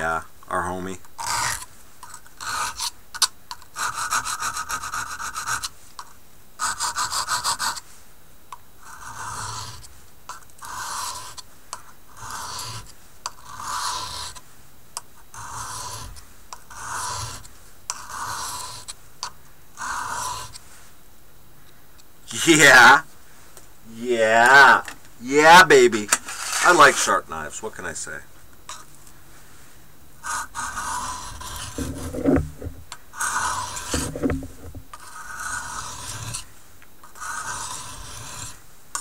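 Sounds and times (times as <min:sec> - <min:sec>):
knife scraping on sharpening stone: 0:12.2 - 0:14.4, 0:15.4 - 0:18.9, 0:26.1 - 0:27.0, 0:30.2 - 0:36.4, 0:37.1 - 0:39.0.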